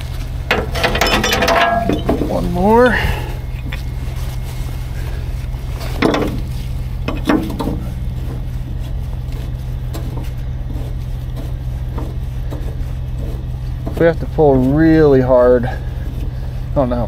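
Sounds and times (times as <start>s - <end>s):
diesel truck engine idling: 0.0s - 17.0s.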